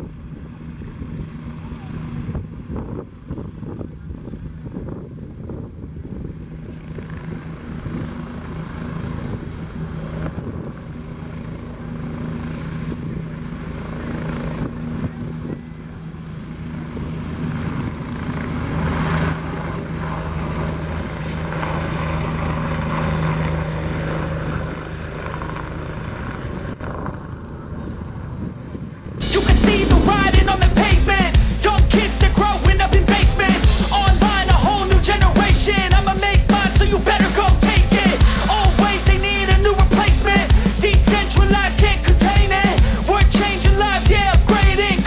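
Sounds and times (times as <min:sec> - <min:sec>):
helicopter turbines and rotor: 0:00.0 - 0:45.0.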